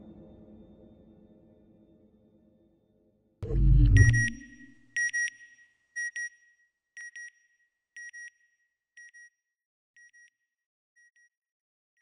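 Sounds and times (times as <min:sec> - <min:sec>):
short high electronic beeps: 0:03.4 - 0:04.7.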